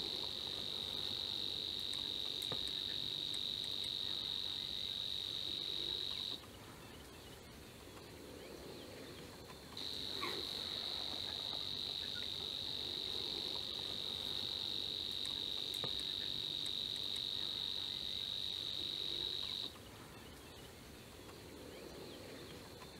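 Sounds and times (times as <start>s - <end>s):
insect buzzing trill: 0.0s - 6.4s, 9.8s - 19.7s.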